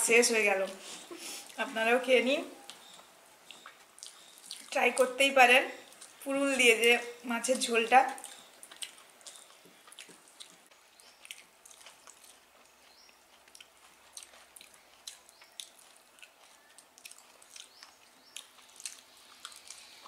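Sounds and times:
people eating with fingers: 2.6s - 6.2s, 8.1s - 20.0s.

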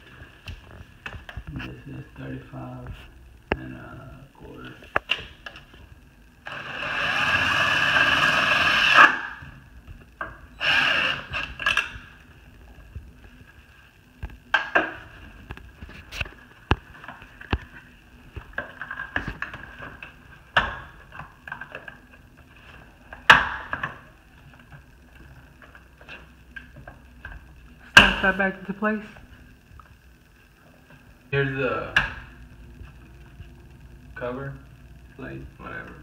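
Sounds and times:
cordless drill driving screw: 6.5s - 9.1s, 10.6s - 11.8s.

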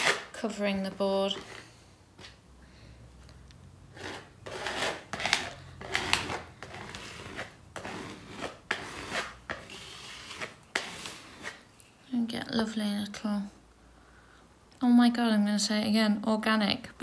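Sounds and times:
spatula scraping paint on board: 0.0s - 2.4s, 3.9s - 11.7s.

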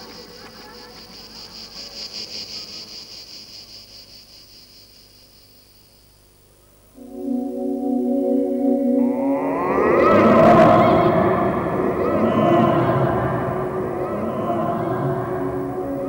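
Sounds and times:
high pulsing cricket-like chirping: 0.0s - 16.0s
sustained musical tone: 6.9s - 16.0s.

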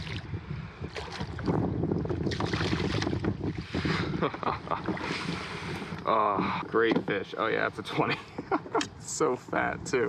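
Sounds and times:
water splashing against a kayak: 0.0s - 9.2s
wind buffeting microphone: 0.0s - 10.0s.

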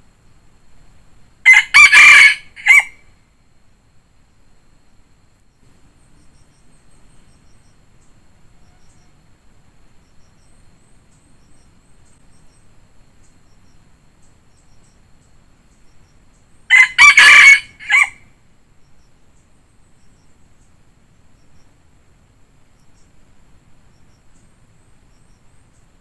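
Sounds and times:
rooster crowing: 1.4s - 3.1s, 16.7s - 18.3s.

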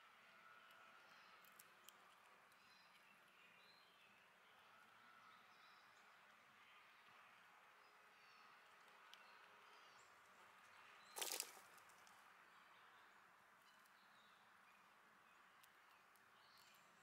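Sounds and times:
squirrel scrambling rustle: 11.0s - 12.3s.

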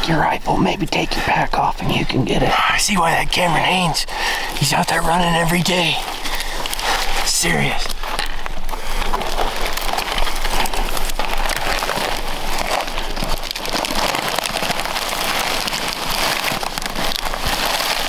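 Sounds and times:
twigs and branches crackling: 0.0s - 18.0s
clothing rustling: 4.5s - 18.0s.

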